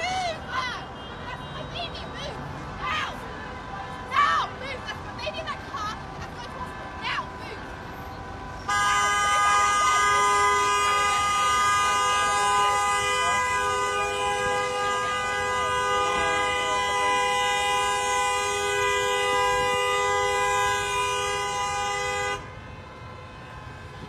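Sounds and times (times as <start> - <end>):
vehicle horn blast: 8.7 - 23.6.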